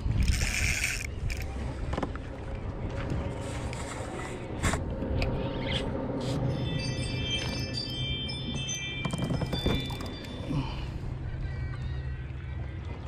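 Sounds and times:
traffic rumble on bridge: 0:00.0 - 0:13.0
fishing gear clicks and knocks: 0:00.1 - 0:02.2, 0:09.0 - 0:10.5.

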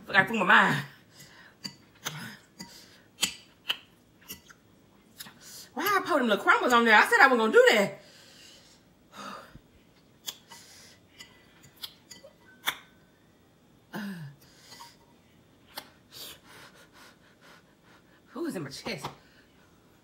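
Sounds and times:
short breaths: 0:08.0 - 0:09.6
fork clicking on glass bowl: 0:11.2 - 0:12.8.

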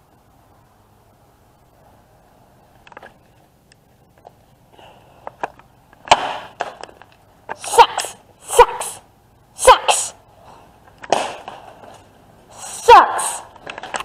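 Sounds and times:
child making fighting noises: 0:07.6 - 0:09.0, 0:09.6 - 0:10.2, 0:12.6 - 0:13.5.

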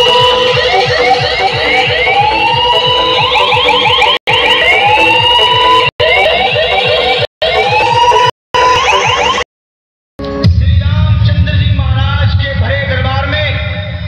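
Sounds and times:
siren-like rising sweep: 0:00.0 - 0:09.4.

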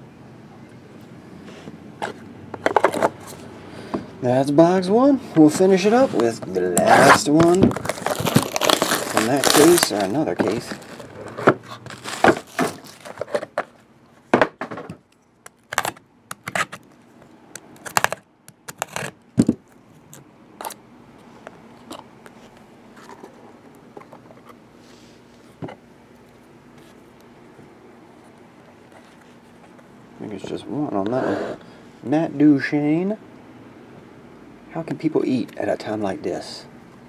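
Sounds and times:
card box being handled: 0:06.0 - 0:13.7.

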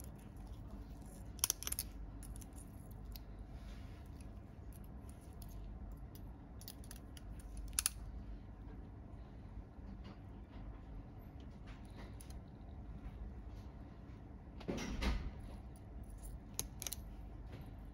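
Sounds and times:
metal instruments clicking: 0:00.0 - 0:03.2
low steady hum: 0:00.0 - 0:17.9.

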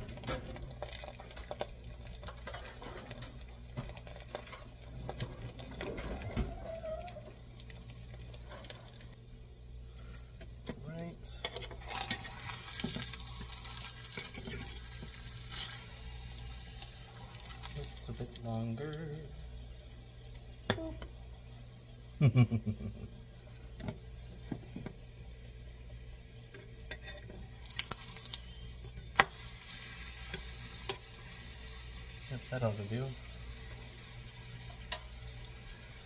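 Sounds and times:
tortilla sizzling in a pan: 0:00.0 - 0:09.2, 0:11.8 - 0:19.2, 0:26.2 - 0:36.0.

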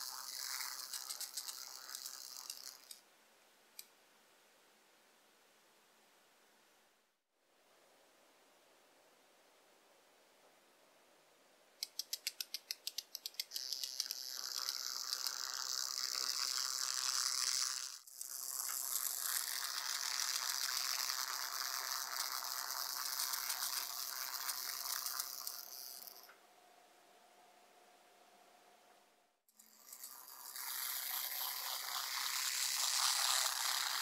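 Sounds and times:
quick ticks: 0:00.0 - 0:03.0, 0:11.8 - 0:26.3
tiny motor high-pitched buzz: 0:00.0 - 0:03.0, 0:11.8 - 0:26.4, 0:29.5 - 0:34.0.

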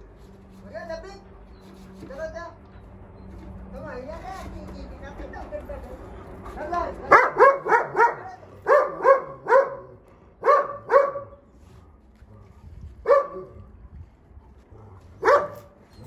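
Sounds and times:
dog barking high-pitched: 0:07.1 - 0:11.4, 0:13.0 - 0:13.5, 0:15.2 - 0:15.7.

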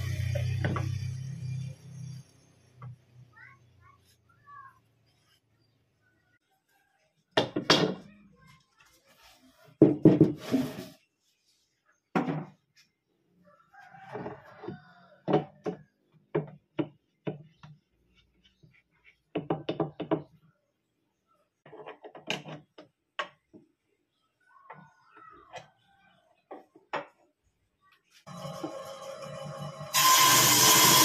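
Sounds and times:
hollow wooden knocks: 0:19.3 - 0:20.3.

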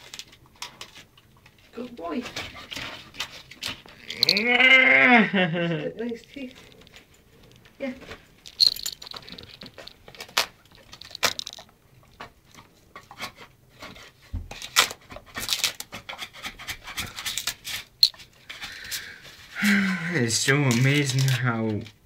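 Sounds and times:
dog scratching and tearing wallpaper: 0:02.2 - 0:04.0, 0:13.0 - 0:18.0.

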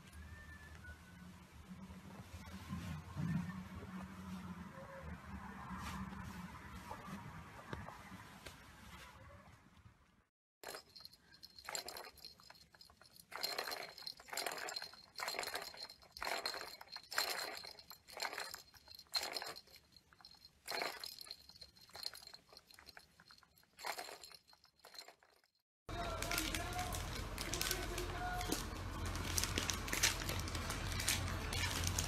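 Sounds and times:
plastic ball rattling around track: 0:10.6 - 0:32.0.

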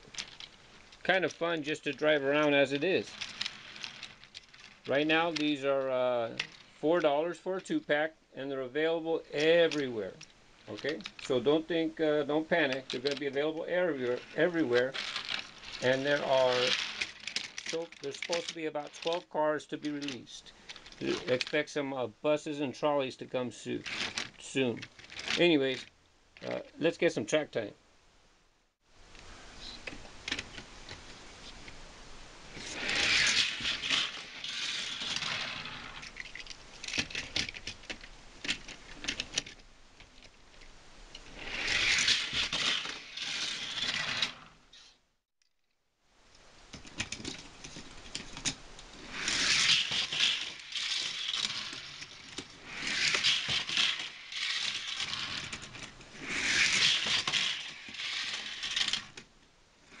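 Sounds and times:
small clicks and clatters: 0:00.0 - 0:06.8, 0:09.4 - 0:11.4, 0:12.6 - 0:21.6, 0:23.8 - 0:26.7, 0:32.6 - 0:44.4, 0:45.4 - 0:59.3
toy trains rattling on plastic track: 0:00.0 - 0:07.8, 0:08.9 - 0:21.8, 0:22.4 - 0:26.6, 0:32.5 - 0:39.6, 0:41.2 - 0:44.5, 0:46.8 - 0:59.2.

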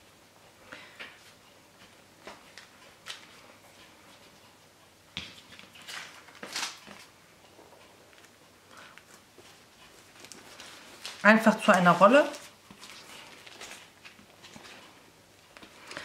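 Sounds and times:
baking paper crinkling: 0:05.4 - 0:07.1, 0:10.0 - 0:14.9.

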